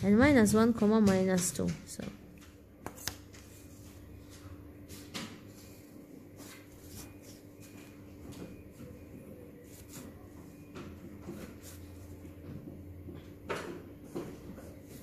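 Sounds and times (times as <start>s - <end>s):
pencil strokes: 9.6s - 10.6s.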